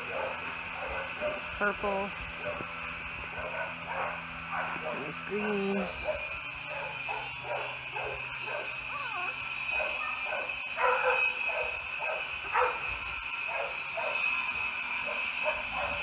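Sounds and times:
puppies yelping loudly: 3.3 - 16.0
puppies whining and yipping: 3.4 - 16.0.

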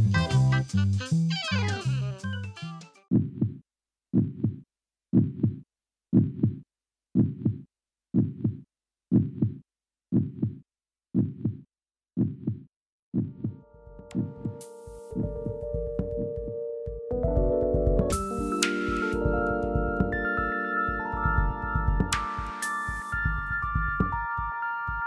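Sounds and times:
heartbeat thumps: 3.1 - 6.6, 7.2 - 7.6, 8.2 - 10.6, 11.2 - 11.6, 12.2 - 18.3, 19.2 - 20.2, 21.2 - 22.2, 23.1 - 24.5.

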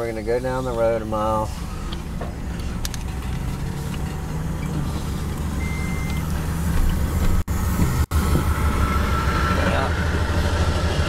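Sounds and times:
car engine and road rumble: 0.0 - 11.0
short high beep: 5.6 - 6.3.

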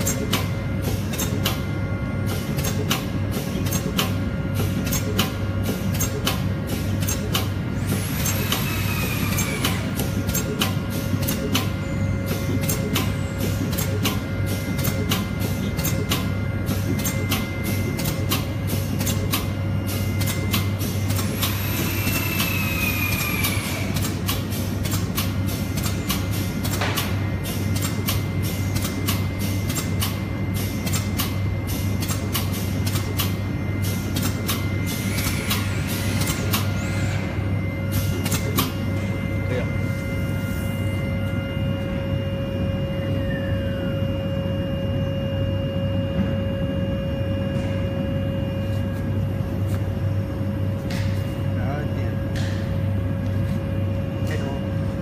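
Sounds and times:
sharp mechanical clicks: 0.0 - 1.6, 2.4 - 8.8, 9.4 - 11.8, 17.0 - 19.5, 20.2 - 27.1, 27.7 - 30.2, 30.8 - 31.4, 32.0 - 33.4, 34.1 - 36.7, 38.2 - 38.7
machinery humming: 0.0 - 55.0
drilling machine humming: 7.8 - 19.2.

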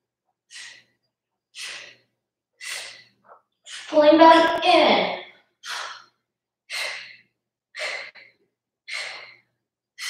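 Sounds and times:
woman breathing out sharply: 2.6 - 3.9, 5.6 - 6.1, 6.7 - 8.3, 8.9 - 9.4.

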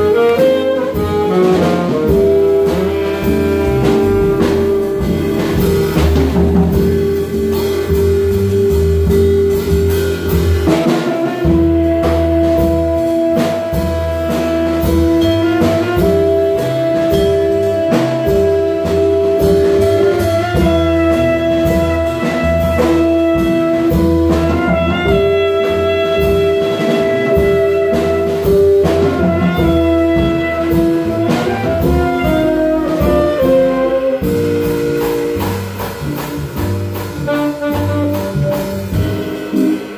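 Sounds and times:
saxophones holding long notes: 0.0 - 6.0
jazz band playing: 0.0 - 39.9.

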